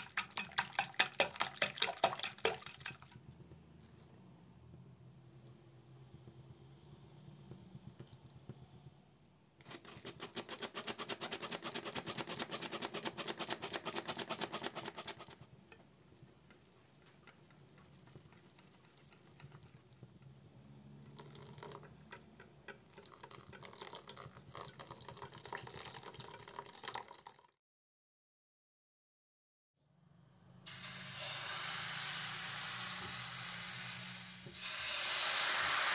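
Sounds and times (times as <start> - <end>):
whisk beating batter in bowl: 0.0 - 3.3, 9.6 - 20.3.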